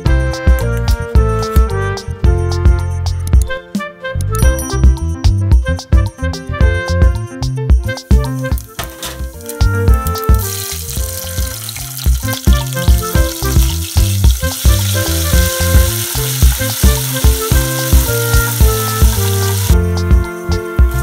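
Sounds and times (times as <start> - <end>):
background music with steady beat: 0.0 - 21.0
spices sizzling in hot oil: 8.1 - 19.9.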